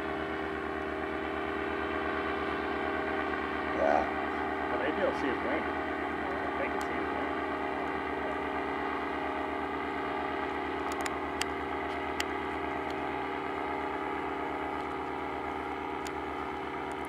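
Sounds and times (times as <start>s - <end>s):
engine droning steadily: 0.0s - 17.0s
light clicks: 10.8s - 13.0s.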